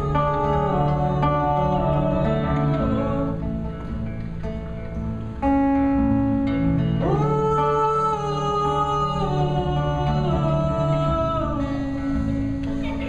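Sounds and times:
man singing wordless notes: 0.0s - 3.9s, 7.0s - 13.0s
acoustic guitar strumming: 0.0s - 13.0s.

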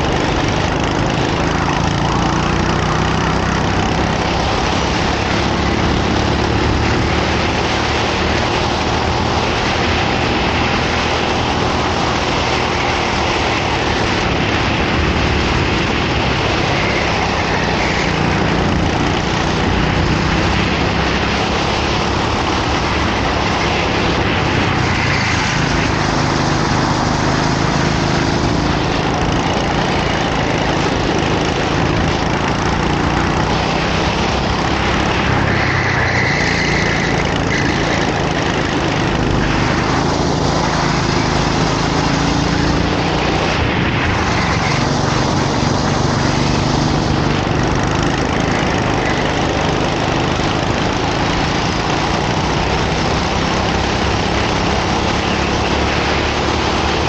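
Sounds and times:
constant noisy rush: 0.0s - 57.0s
kart engine revving: 0.0s - 57.0s.

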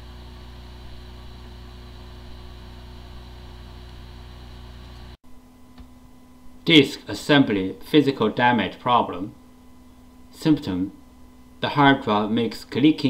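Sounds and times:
hard drive spinning whir: 0.0s - 6.6s.

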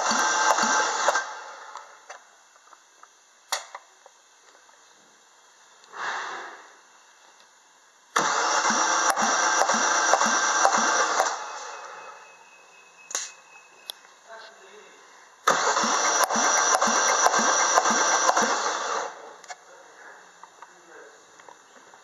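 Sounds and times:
engine cranking on starter: 0.0s - 1.8s, 8.1s - 12.2s, 15.4s - 19.3s
short hiss: 5.8s - 6.8s, 13.1s - 13.4s
sharp click: 13.1s - 14.1s.

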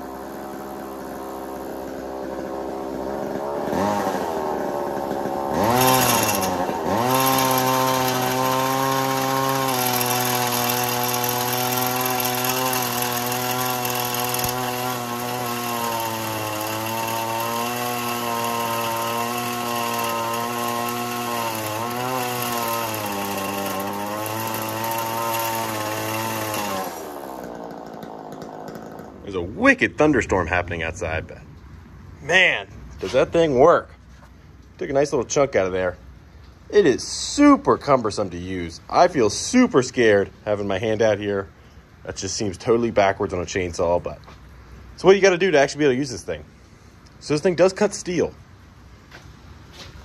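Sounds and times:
chainsaw engine revving: 0.0s - 29.8s
saw blade cutting steel: 5.6s - 27.6s.

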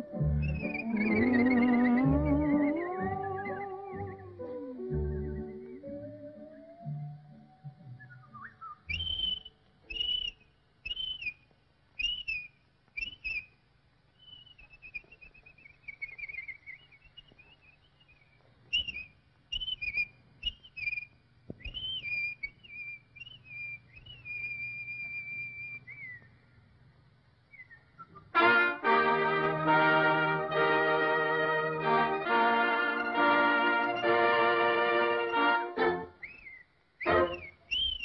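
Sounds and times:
faint low hum: 0.0s - 38.0s
cartoon bird whistling: 0.3s - 6.9s, 8.0s - 11.4s, 12.0s - 13.5s, 14.2s - 26.3s, 33.8s - 38.0s.

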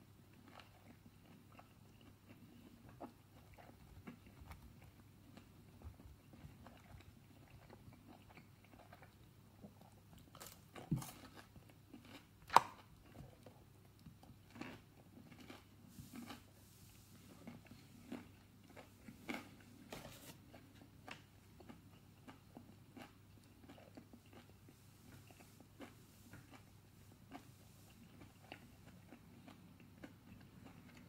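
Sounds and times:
person chewing crunchy food: 0.3s - 31.0s.

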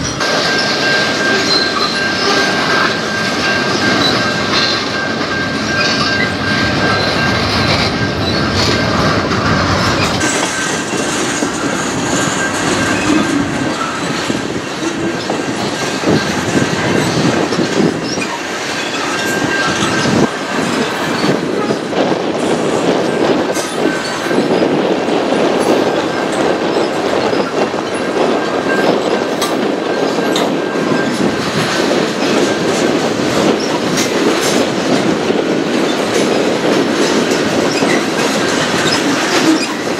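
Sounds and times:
wheel squeal: 0.0s - 21.8s, 37.6s - 39.9s
train wheels clacking over rail joints: 0.0s - 39.9s.

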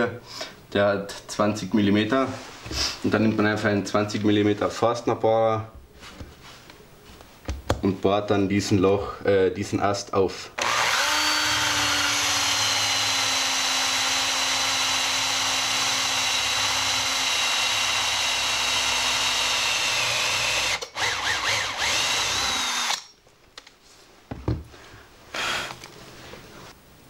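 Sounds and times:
cordless drill boring wood: 10.6s - 23.1s, 25.3s - 25.8s.

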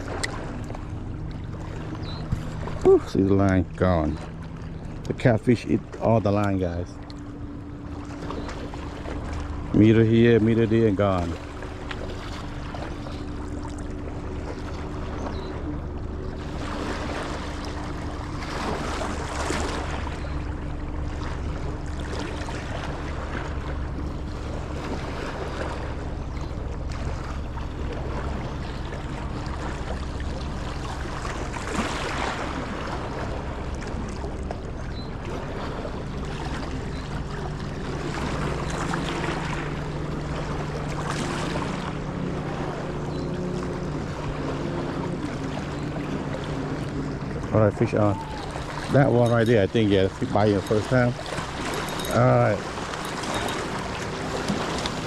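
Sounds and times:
boat motor humming: 0.0s - 55.0s
water noise: 0.0s - 55.0s
wind: 0.0s - 55.0s.

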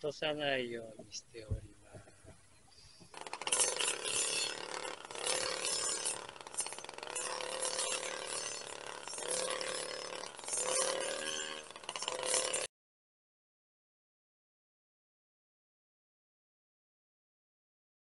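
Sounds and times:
blade cutting grass: 3.1s - 12.7s
brushcutter engine running: 3.1s - 12.7s.

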